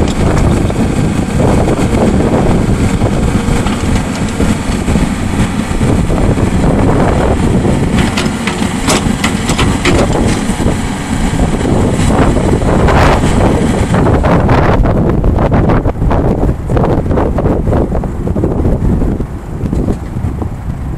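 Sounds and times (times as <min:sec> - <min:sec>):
excavator diesel engine running: 0:00.0 - 0:20.9
sharp knocks: 0:08.0 - 0:10.5.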